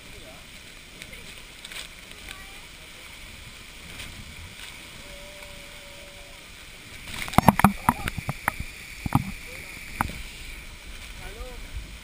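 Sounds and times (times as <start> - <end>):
waterfall rushing: 0.0 - 12.0
knocks and taps on microphone: 7.3 - 9.4, 10.0 - 10.2.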